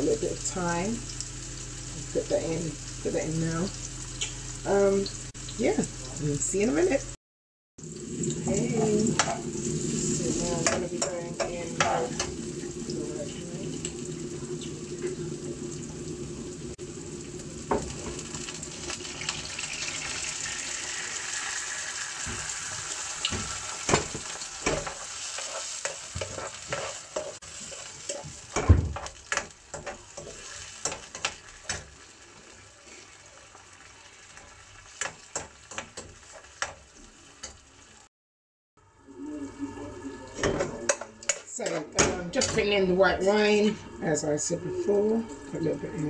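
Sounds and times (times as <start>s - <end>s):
wine sizzling in hot pan: 0.0s - 7.2s, 7.8s - 38.1s, 39.0s - 46.0s
metal spoon scraping a pan: 22.2s - 31.9s.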